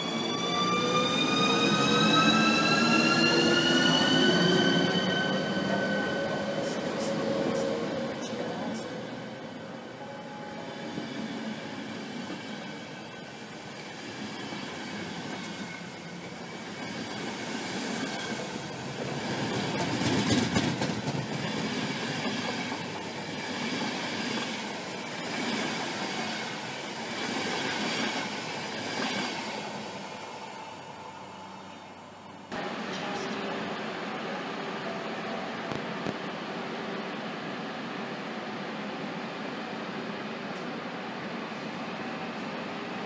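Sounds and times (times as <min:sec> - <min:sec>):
train wheels clacking over rail joints: 0:19.3 - 0:22.8.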